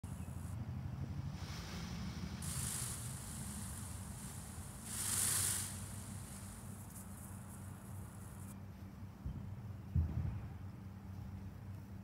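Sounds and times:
wind rumbling on microphone: 0.1 - 8.5
rustling hiss: 0.1 - 8.6.

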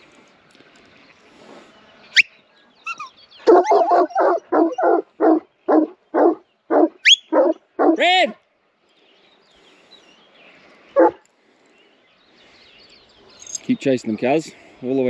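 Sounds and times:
dog barking: 3.5 - 8.0, 11.0 - 11.2.

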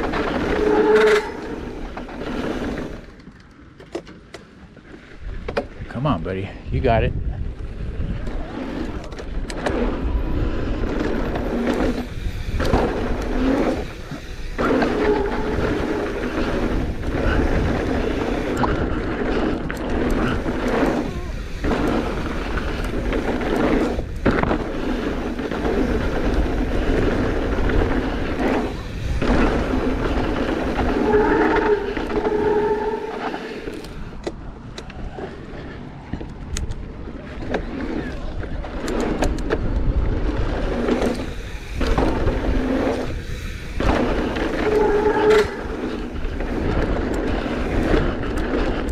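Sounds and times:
bike rattling: 0.0 - 48.9
bike tyres rolling on rough ground: 0.0 - 48.9
short squeal: 0.4 - 1.7, 31.0 - 33.6
wind rumbling on microphone: 5.0 - 48.9.

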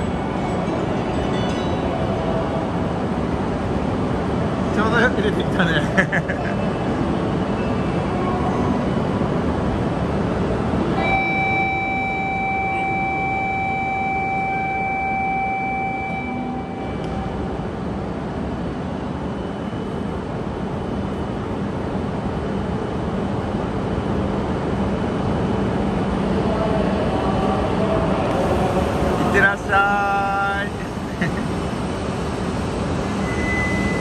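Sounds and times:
train humming at platform: 0.0 - 34.0
electronic departure buzzer: 11.0 - 17.0.

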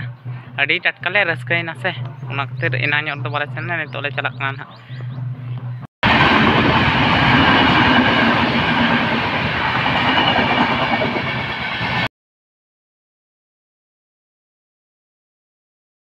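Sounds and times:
train wheels on rails rushing: 6.0 - 12.1.

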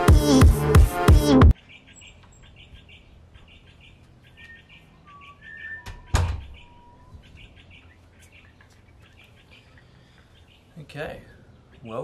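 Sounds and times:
small birds chirping: 1.5 - 12.0
short whistled bird calls: 4.4 - 7.1
front door thudding shut: 5.8 - 6.6.

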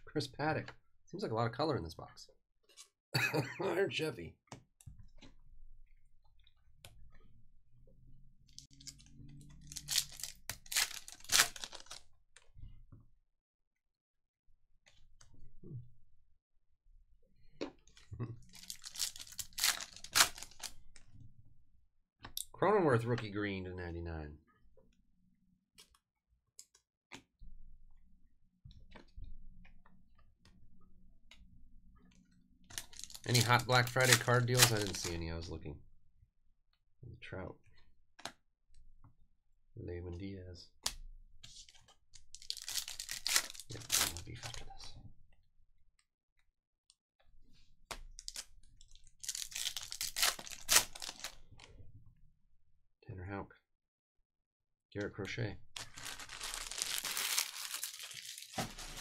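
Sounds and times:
foil wrapper crinkling and tearing: 8.6 - 12.0, 18.5 - 20.8, 32.7 - 35.1, 42.2 - 44.6, 48.2 - 51.4, 55.8 - 59.0.

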